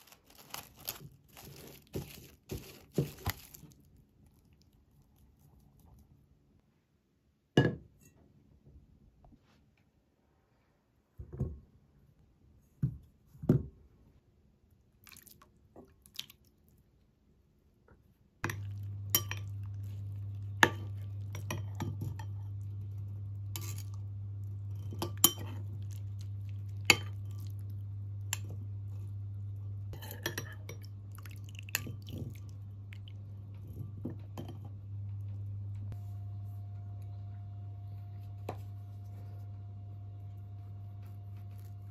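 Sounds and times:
steady low hum: 0:18.2 - 0:41.9.

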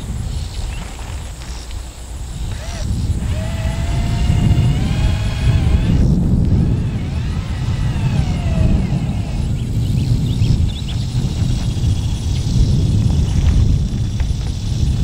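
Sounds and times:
power drill motor whining: 0:00.6 - 0:12.3.

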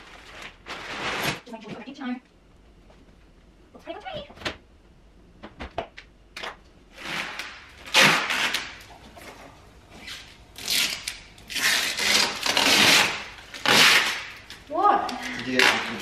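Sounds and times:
plastic film peeling and crinkling: 0:00.0 - 0:01.5, 0:07.0 - 0:08.9, 0:10.0 - 0:16.0.

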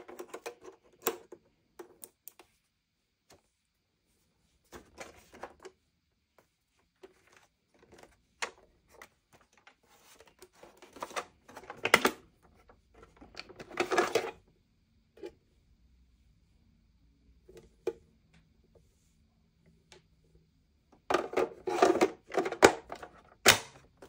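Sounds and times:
clicks and clatters of handling: 0:00.0 - 0:02.5, 0:07.0 - 0:14.4, 0:21.1 - 0:24.0.

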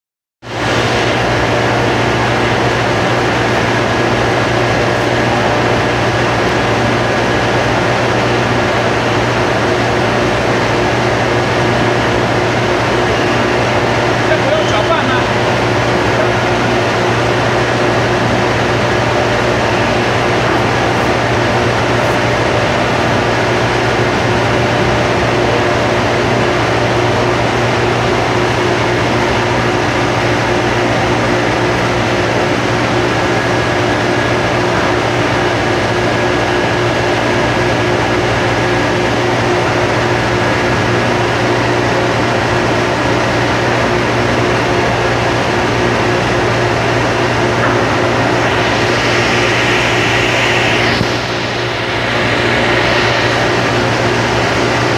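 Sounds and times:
industrial machinery drone: 0:00.4 - 0:54.9
high hiss: 0:47.6 - 0:54.9.

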